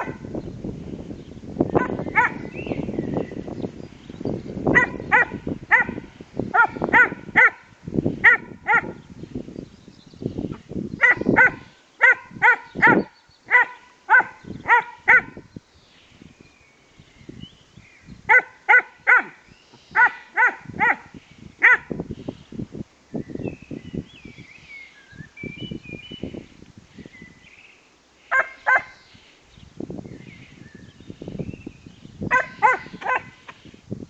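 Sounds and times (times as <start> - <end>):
dogs barking high-pitched: 0.0 - 0.3, 1.8 - 2.6, 4.7 - 9.0, 11.0 - 15.5, 18.3 - 22.0, 28.3 - 29.0, 32.3 - 33.5.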